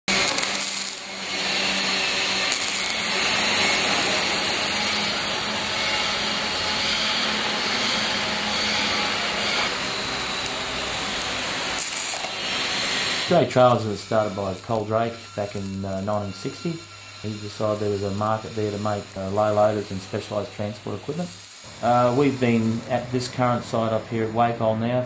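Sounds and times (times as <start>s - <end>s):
welding arc hissing: 0.0s - 25.0s.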